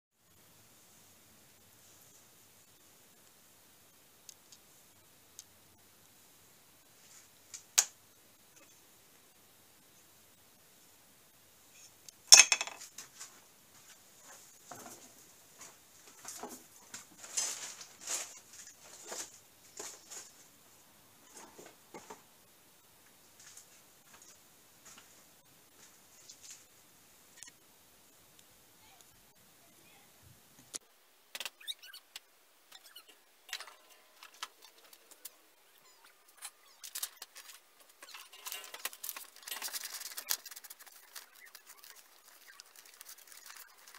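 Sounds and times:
objects clattering on workbench: 0:12.3 - 0:12.9
paper rustling: 0:36.4 - 0:43.9.

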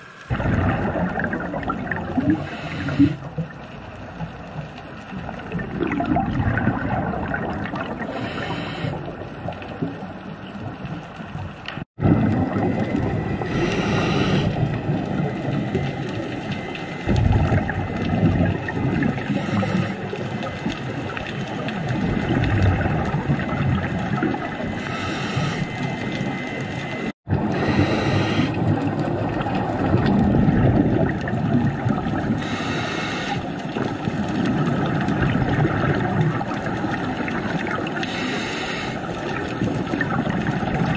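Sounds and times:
hissing burst of bubbles: 0:00.0 - 0:03.5, 0:05.4 - 0:09.1
underwater gurgling rumble: 0:00.0 - 0:40.9.

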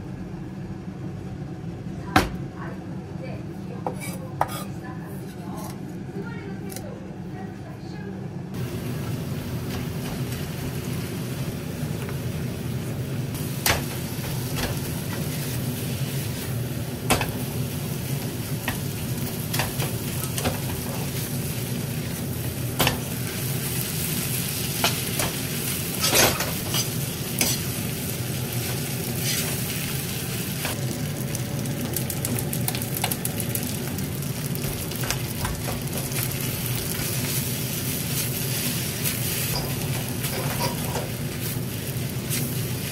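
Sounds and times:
spoon scraping pan: 0:03.9 - 0:05.8
rice sizzling in pan: 0:08.6 - 0:42.9.

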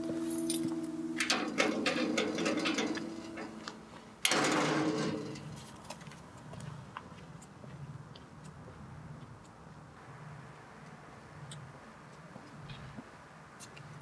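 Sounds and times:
iron gate rattling: 0:00.0 - 0:05.8
sharp metallic clank: 0:00.0 - 0:05.8.

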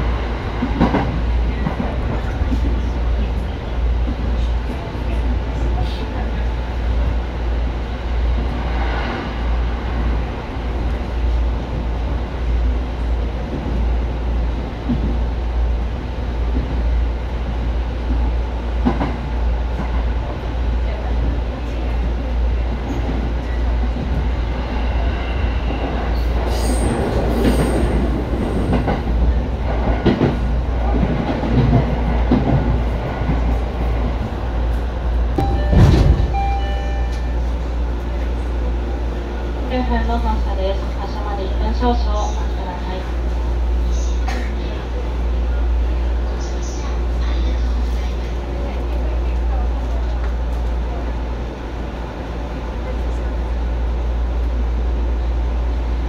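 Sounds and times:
train wheels clattering over track: 0:00.0 - 0:06.4, 0:18.0 - 0:20.3, 0:21.1 - 0:36.4
train rumble: 0:00.0 - 0:56.0.

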